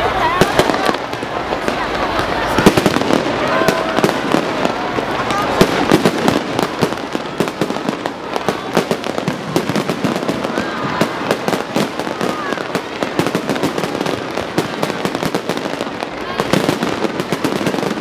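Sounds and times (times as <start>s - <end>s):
fireworks bangs and crackling pops: 0.0s - 18.0s.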